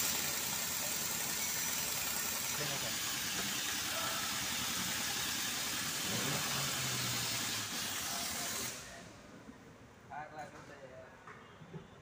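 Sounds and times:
machine hiss: 0.0s - 9.0s.

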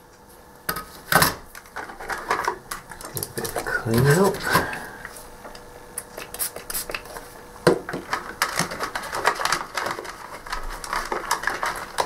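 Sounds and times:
tools clicking and rubbing on workbench: 7.8s - 12.0s.

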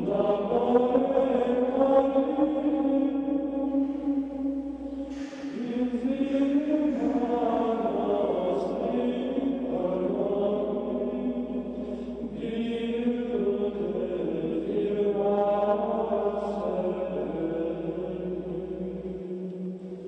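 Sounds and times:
men chanting plainchant: 5.1s - 18.1s.

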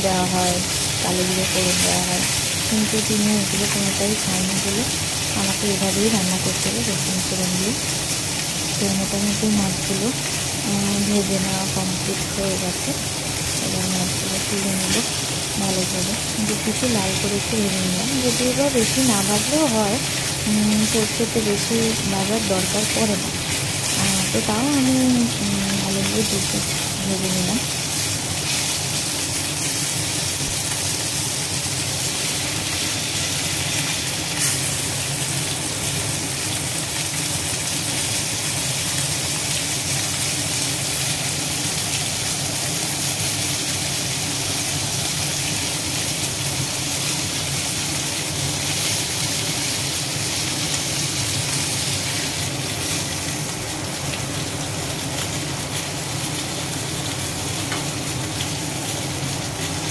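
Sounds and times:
fish sizzling in hot oil: 0.0s - 59.9s.

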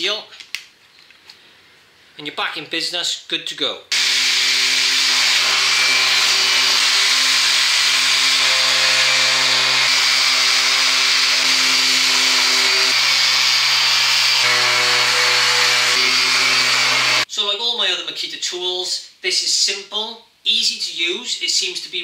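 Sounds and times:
orbital sander motor hum: 3.9s - 17.2s.

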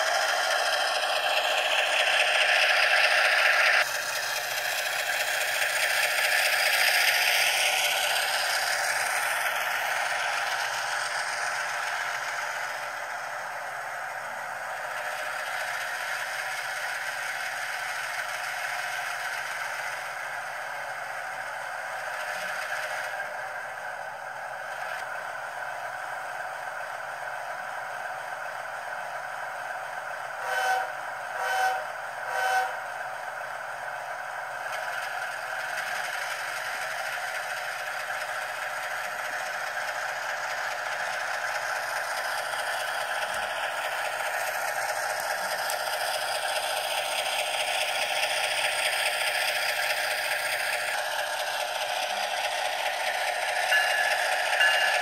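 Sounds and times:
model diesel engine sound: 0.0s - 55.0s
horn blasts: 30.4s - 32.8s.

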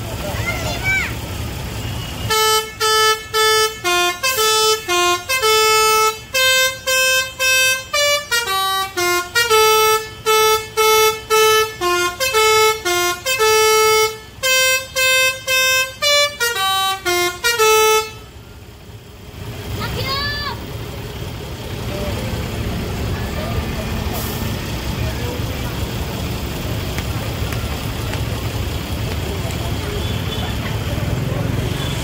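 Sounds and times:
multi-tone bus horn tune: 1.7s - 18.6s, 29.8s - 32.0s.

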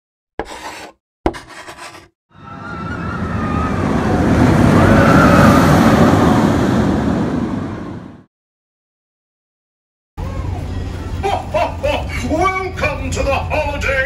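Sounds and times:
noisy swell: 2.4s - 8.3s.

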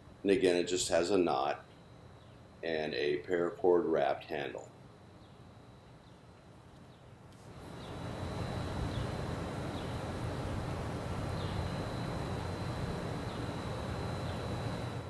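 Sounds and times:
faint bird chirps: 1.6s - 2.5s, 5.1s - 8.1s, 11.3s - 12.4s
low rumbling noise: 7.5s - 15.0s.

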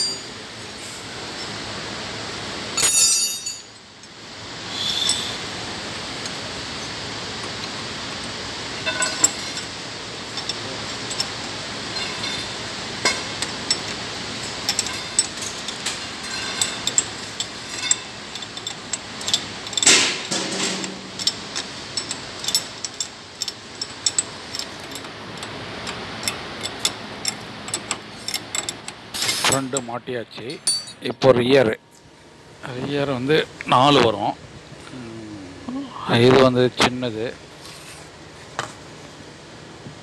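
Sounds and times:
metal spanners clinking: 0.0s - 0.3s, 2.8s - 4.2s, 8.2s - 9.7s, 10.3s - 31.1s.

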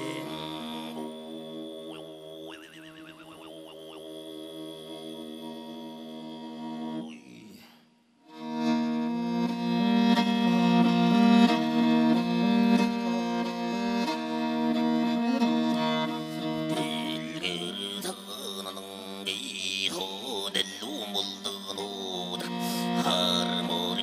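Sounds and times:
bowed fiddle melody: 0.0s - 7.1s, 8.3s - 24.0s
throat-sung drone: 0.0s - 7.6s, 8.3s - 19.1s.

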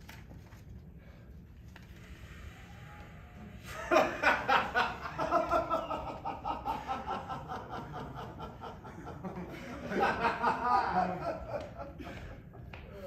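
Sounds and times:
person laughing hard: 3.7s - 12.5s.

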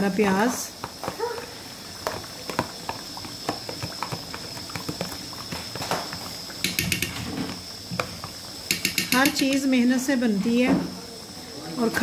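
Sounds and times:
spoon tapping on metal: 6.6s - 7.3s, 8.7s - 9.7s.

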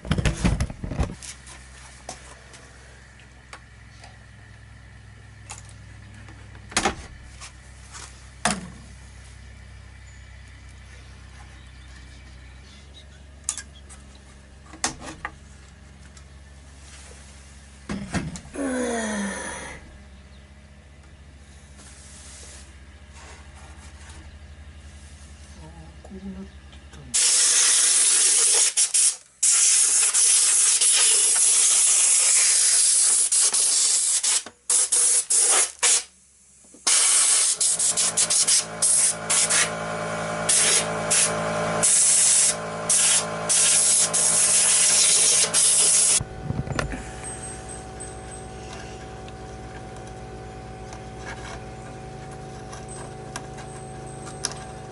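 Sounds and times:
low steady hum: 0.0s - 27.2s, 37.7s - 54.9s
compressed air hissing from nozzle: 27.2s - 36.1s, 36.9s - 39.7s, 40.5s - 46.2s.

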